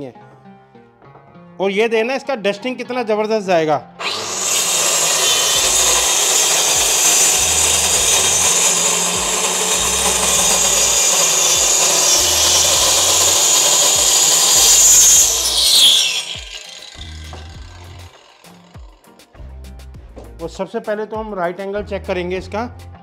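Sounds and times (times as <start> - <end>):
circular saw cutting plywood: 4.0 - 19.2.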